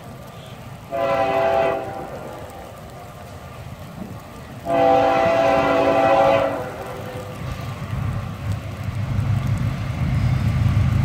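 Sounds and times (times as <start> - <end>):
train rumble: 0.0 - 11.0
locomotive air horn blast: 0.9 - 2.5, 4.6 - 7.4.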